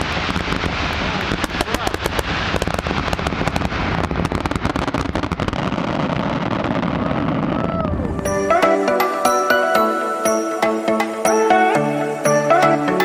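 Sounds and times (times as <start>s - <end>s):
fireworks crackling and banging: 0.0s - 13.0s
music: 8.1s - 13.0s.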